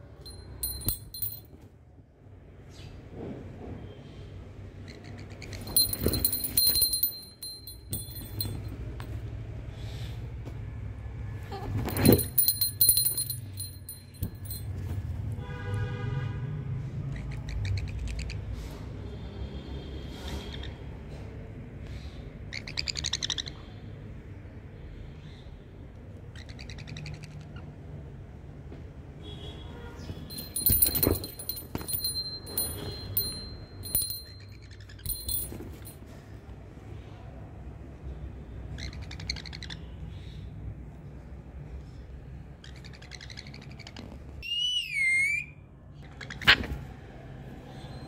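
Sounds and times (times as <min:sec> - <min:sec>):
metallic jingling: 0:00.2 - 0:01.5, 0:05.6 - 0:08.8, 0:11.9 - 0:14.9, 0:30.3 - 0:36.0
knocks and rustles: 0:05.6 - 0:09.1, 0:11.6 - 0:15.1, 0:30.2 - 0:34.3
parakeet squeaking and chirping: 0:42.6 - 0:45.5.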